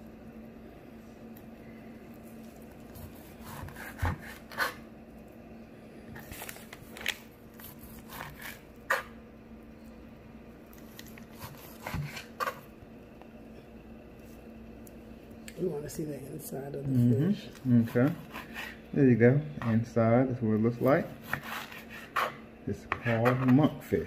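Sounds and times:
steady low hum: 0:00.0 - 0:24.0
knife slicing fish: 0:02.9 - 0:04.8, 0:07.6 - 0:09.1, 0:11.3 - 0:12.6, 0:21.2 - 0:22.4.

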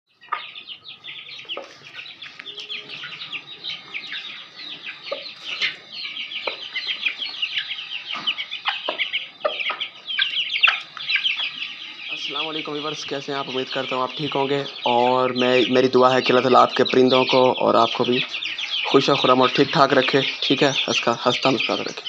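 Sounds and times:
chickens clucking: 0:00.1 - 0:22.0
high chirps chatter: 0:00.1 - 0:22.0.

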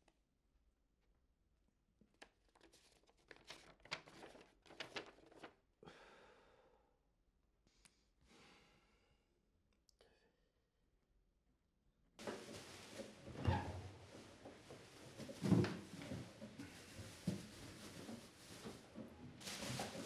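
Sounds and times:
paper rustling: 0:02.0 - 0:05.6, 0:14.1 - 0:20.0
person sighing: 0:05.8 - 0:06.6.

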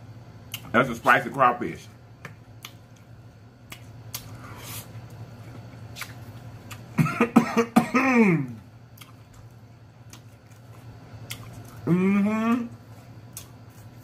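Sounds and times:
man chewing: 0:02.5 - 0:07.0, 0:08.4 - 0:14.0
man coughing: 0:06.9 - 0:08.6.

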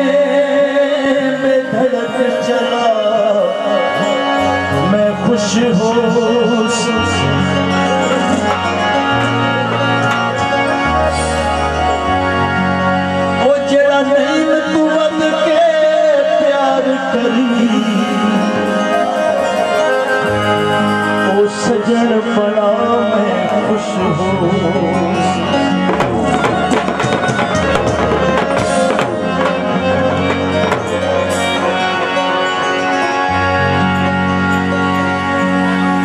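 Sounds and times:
harmoniums playing: 0:00.0 - 0:36.0
bansuri flute: 0:17.8 - 0:21.3
tabla strokes: 0:25.8 - 0:31.6.

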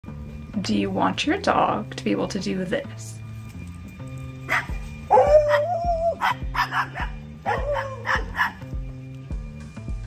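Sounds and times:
background music with steady beat: 0:00.0 - 0:10.0
dog whining and yipping: 0:04.5 - 0:08.6.

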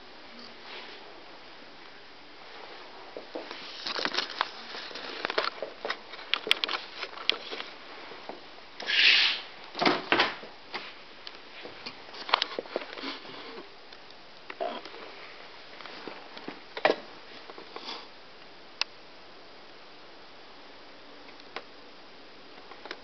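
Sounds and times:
short swishing hiss: 0:08.8 - 0:09.5.

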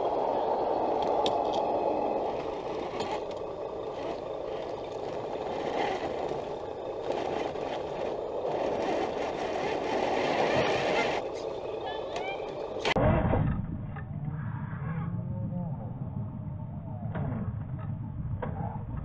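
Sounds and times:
muffled drivetrain noise: 0:00.0 - 0:19.0
tyres scraping on rock: 0:02.1 - 0:11.3.

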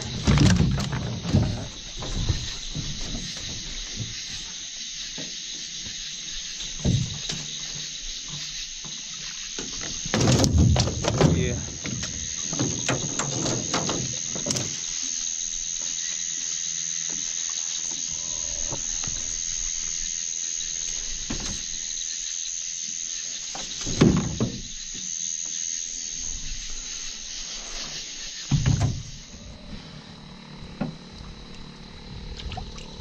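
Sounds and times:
crickets and insects shrilling: 0:00.0 - 0:33.0.

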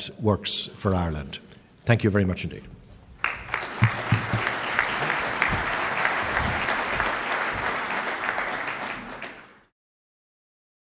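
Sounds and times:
audience applauding: 0:03.2 - 0:09.7.

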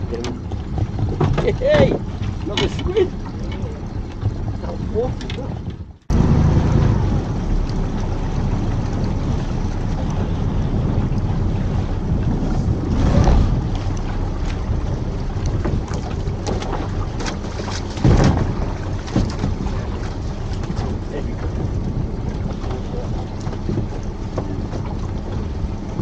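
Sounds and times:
boat engine hum: 0:00.0 - 0:26.0
water noise: 0:00.0 - 0:26.0
wind rumbling on microphone: 0:00.0 - 0:26.0.

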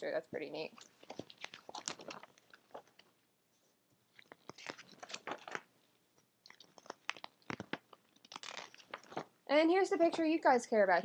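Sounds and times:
paper pages rustling: 0:00.8 - 0:05.8, 0:06.5 - 0:09.3.

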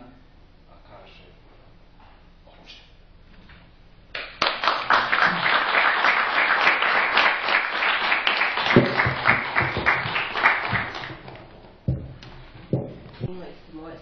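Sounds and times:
audience applauding: 0:04.2 - 0:11.4.

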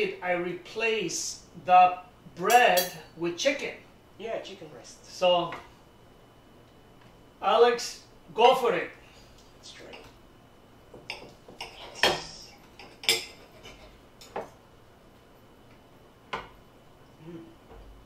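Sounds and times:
cutlery clinking on plates: 0:11.0 - 0:14.5.

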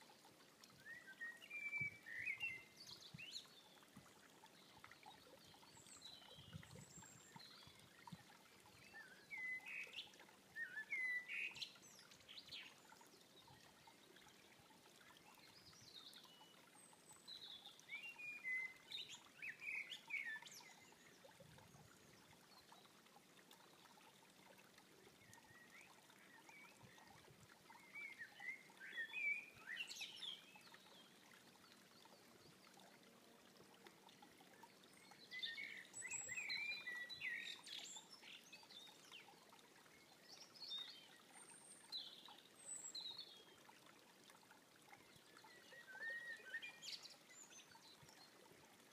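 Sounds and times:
blackbird singing: 0:10.6 - 0:11.6.

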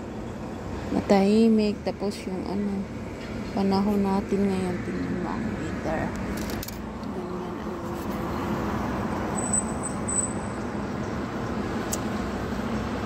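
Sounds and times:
cars passing on road: 0:00.0 - 0:13.0.

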